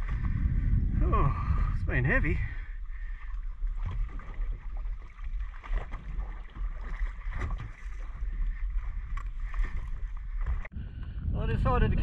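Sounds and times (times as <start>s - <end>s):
wind buffeting microphone: 0.0s - 12.0s
water slapping against boat hull: 3.0s - 10.7s.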